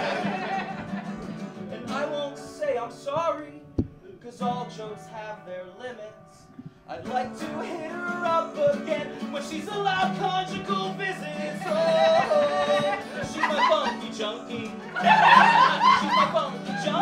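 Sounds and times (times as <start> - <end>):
acoustic guitars strummed: 0.0 - 17.0
man singing: 1.6 - 17.0.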